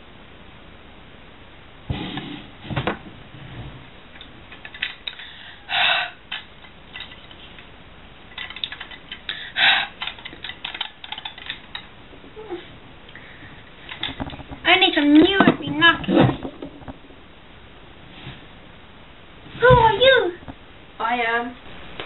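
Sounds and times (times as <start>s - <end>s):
thump: 2.6s - 3.1s.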